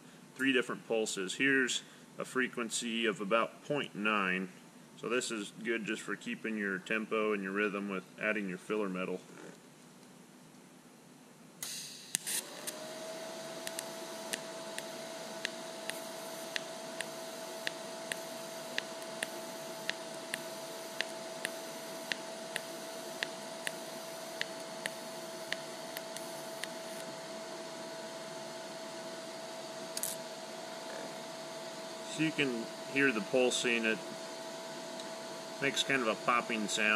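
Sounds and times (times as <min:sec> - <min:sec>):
welding arc crackle: 0:11.6 - 0:12.8, 0:13.5 - 0:27.1
welding arc humming and popping: 0:11.6 - 0:36.9.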